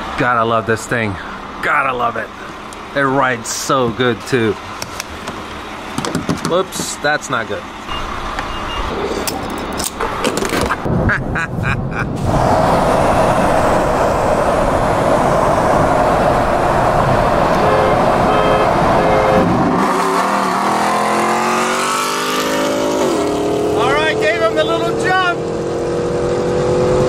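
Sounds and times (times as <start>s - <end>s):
road and wind noise: 0.0s - 27.0s
fuel nozzle knocking: 4.8s - 7.0s
engine accelerating: 11.9s - 27.0s.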